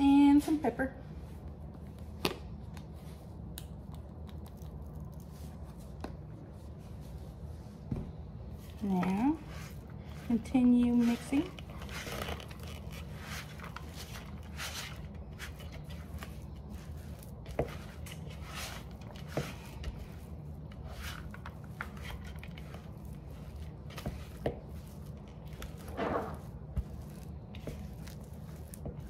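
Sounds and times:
scraping and squishing stirring: 0:08.5 - 0:29.0.

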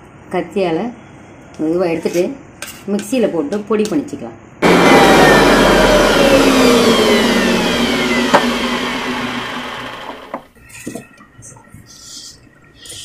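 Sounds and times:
mixer grinder motor whine: 0:04.6 - 0:10.5.

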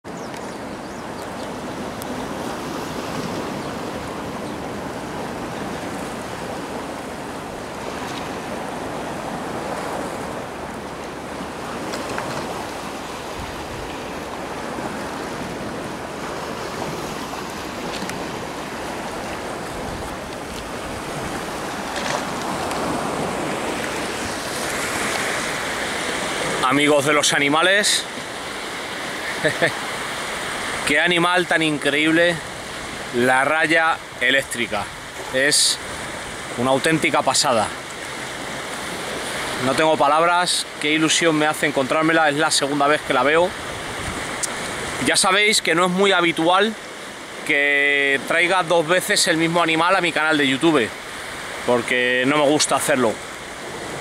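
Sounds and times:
sea waves on rocky shore: 0:00.0 - 0:54.0.

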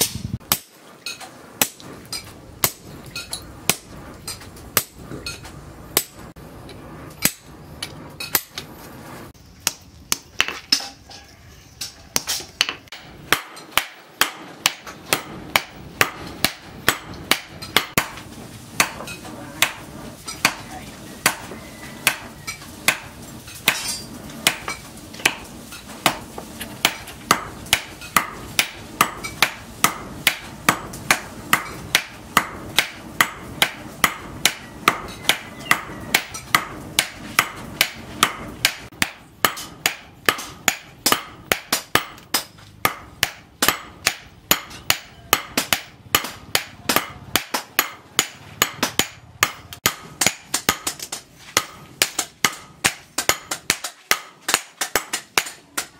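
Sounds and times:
hammer striking steel on anvil: 0:00.0 - 0:06.3, 0:07.2 - 0:08.7, 0:11.8 - 0:18.2, 0:18.8 - 0:55.9.

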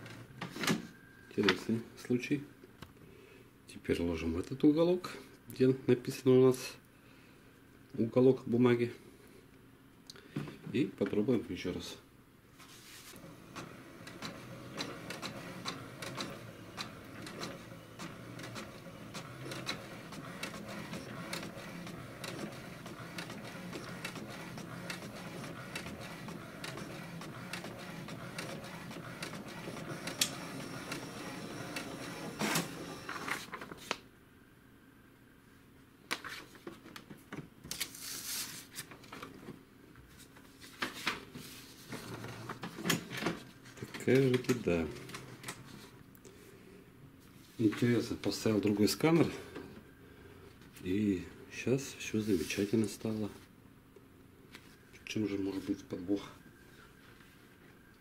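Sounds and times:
paper rustling: 0:12.6 - 0:13.3, 0:37.7 - 0:39.3, 0:40.1 - 0:42.8
inkjet printer printing: 0:13.1 - 0:33.7, 0:41.8 - 0:43.4, 0:44.1 - 0:45.8.

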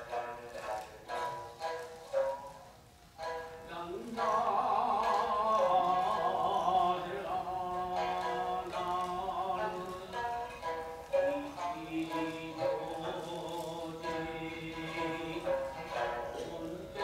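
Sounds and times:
shamisen notes plucked: 0:00.0 - 0:17.0
man chanting: 0:03.6 - 0:17.0.

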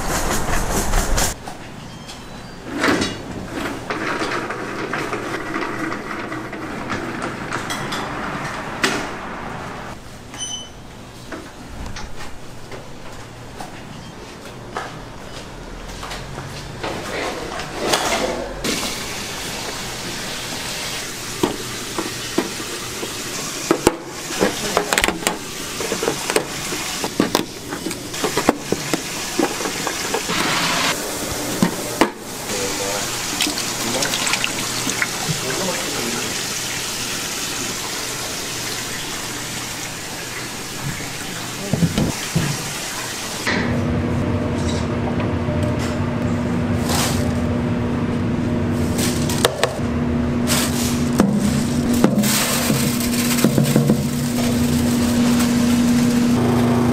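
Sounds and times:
utensils and containers clinking: 0:01.8 - 0:08.6, 0:16.8 - 0:36.4, 0:50.5 - 0:56.4
running water: 0:28.1 - 0:43.5
steady machine hum: 0:43.5 - 0:56.9.

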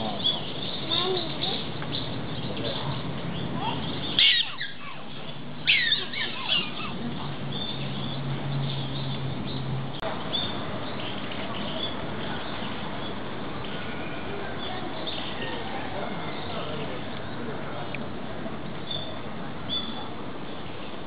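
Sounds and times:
high chirping calls: 0:00.0 - 0:13.2, 0:18.8 - 0:20.2.

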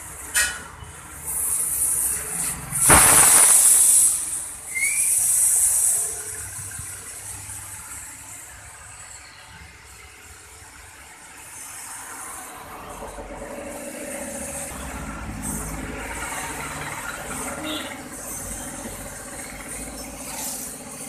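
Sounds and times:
air hissing out of tyre valve: 0:01.2 - 0:06.4.

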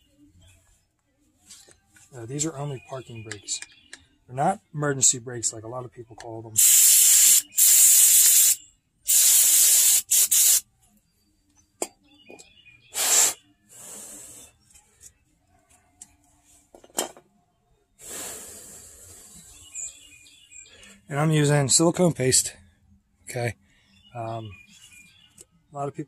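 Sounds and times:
pressurized spray hissing: 0:06.6 - 0:10.6, 0:13.0 - 0:14.4.

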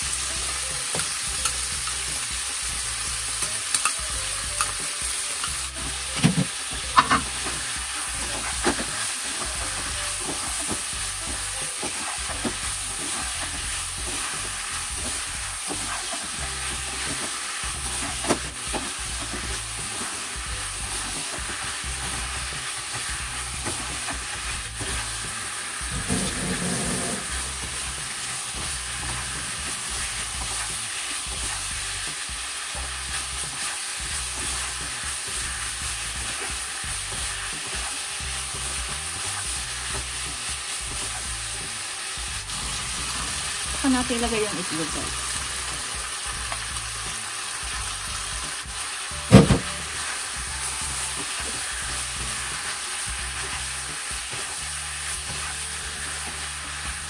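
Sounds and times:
food sizzling in a frying pan: 0:00.0 - 0:57.0
spatula scraping a pan: 0:21.2 - 0:31.6.

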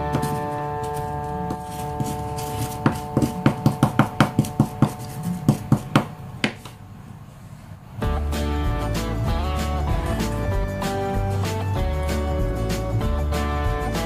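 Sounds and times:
background music: 0:00.0 - 0:04.6, 0:08.0 - 0:14.0
wooden pestle tapping mortar: 0:01.5 - 0:06.6.

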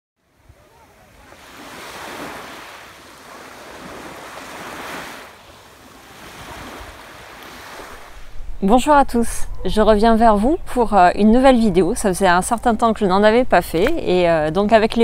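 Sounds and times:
waves washing up a beach: 0:00.2 - 0:08.5.

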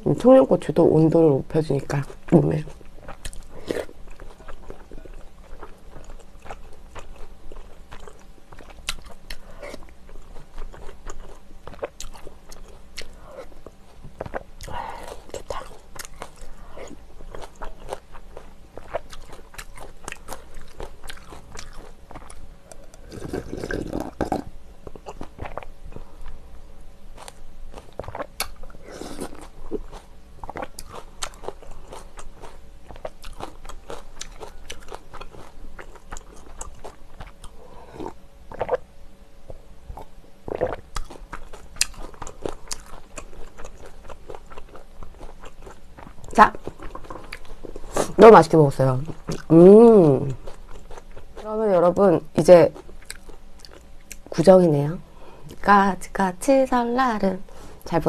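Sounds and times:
chewing with crunches: 0:01.8 - 0:26.5, 0:27.1 - 0:54.4.

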